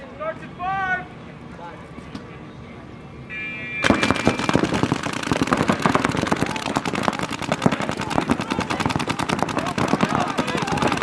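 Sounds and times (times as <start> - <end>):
paintball guns firing rapidly: 3.8 - 11.0.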